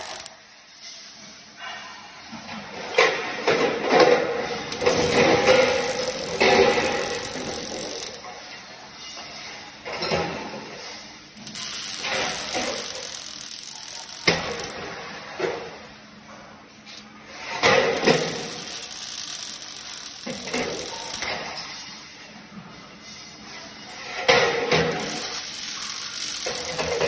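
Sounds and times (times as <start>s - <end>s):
welding arc crackling and hissing: 0.0s - 0.6s, 4.0s - 8.3s, 11.4s - 15.0s, 17.3s - 21.7s, 24.3s - 27.0s.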